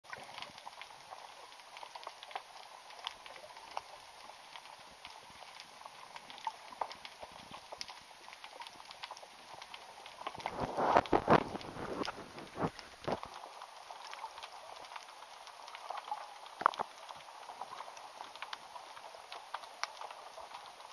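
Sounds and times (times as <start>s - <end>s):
underwater clicks crackling: 15.6s - 18.7s.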